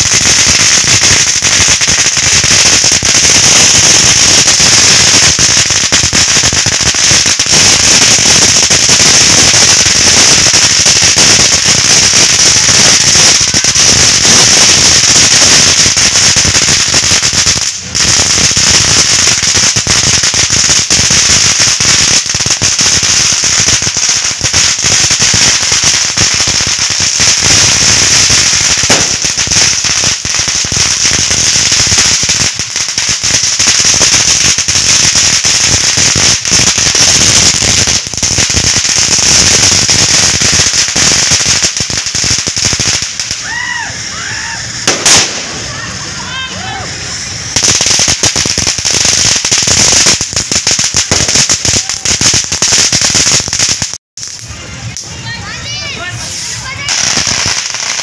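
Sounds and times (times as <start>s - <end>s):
firecrackers crackling: 0.0s - 58.0s
steady high hiss: 37.5s - 53.5s, 54.2s - 58.0s.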